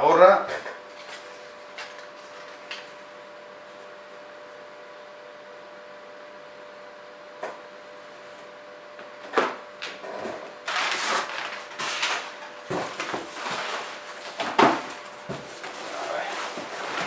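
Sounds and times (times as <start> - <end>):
rustling cardboard and plastic: 10.6 - 17.0.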